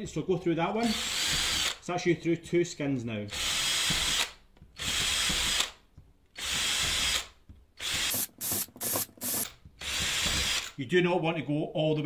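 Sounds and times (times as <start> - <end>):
power drill boring plastic: 0.8 - 1.8, 3.3 - 5.8, 6.4 - 10.8.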